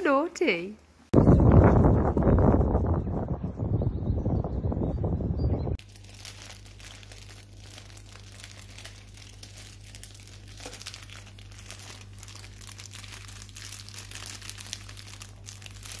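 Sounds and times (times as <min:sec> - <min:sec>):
steady low hum: 0:00.8 - 0:16.0
crinkling and rustling: 0:05.8 - 0:16.0.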